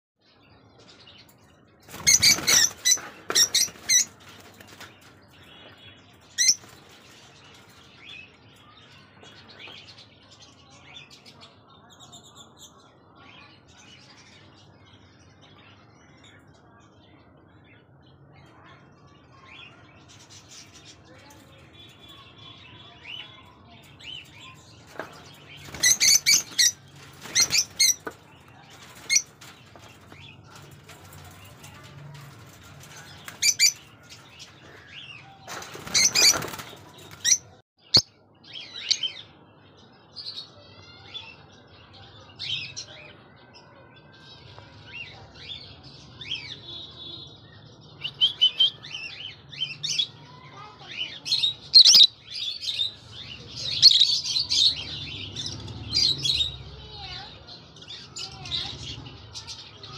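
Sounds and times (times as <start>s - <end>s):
birds flapping wings: 1.8s - 5.3s, 24.9s - 34.5s, 35.5s - 37.4s
high-pitched bird chirping: 51.4s - 55.0s.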